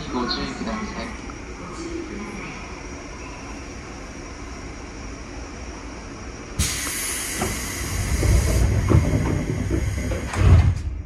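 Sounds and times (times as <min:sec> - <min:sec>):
train rumble: 0:00.0 - 0:11.0
air hiss: 0:06.6 - 0:08.8
train door clunks: 0:06.6 - 0:11.0.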